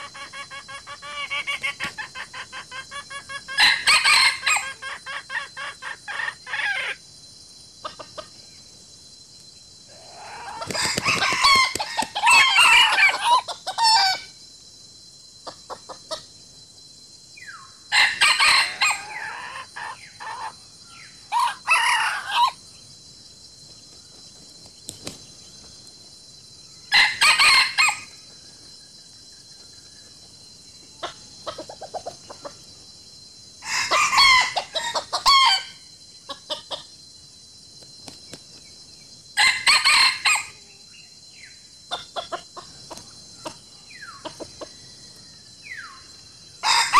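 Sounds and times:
chickens clucking: 0.0s - 3.7s, 31.0s - 32.6s, 41.9s - 44.8s
roosters crowing: 0.0s - 7.0s, 9.9s - 14.3s, 17.9s - 20.6s, 21.2s - 22.6s, 26.9s - 28.2s, 33.6s - 35.8s, 39.4s - 40.7s, 46.5s - 46.9s.

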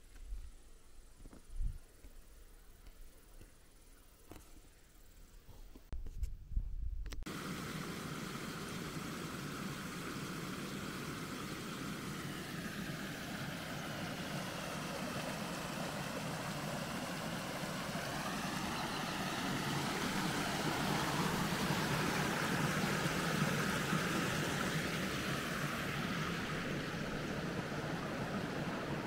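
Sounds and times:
distant engine running: 7.3s - 29.0s
steady hiss: 7.3s - 29.0s.

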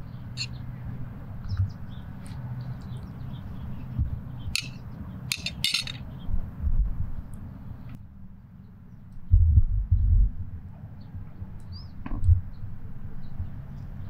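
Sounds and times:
metal spoon scraping a plate: 4.6s - 6.0s.

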